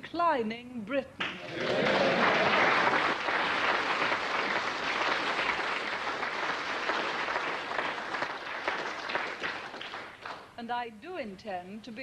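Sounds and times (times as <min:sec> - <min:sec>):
audience applauding: 0:01.3 - 0:10.5.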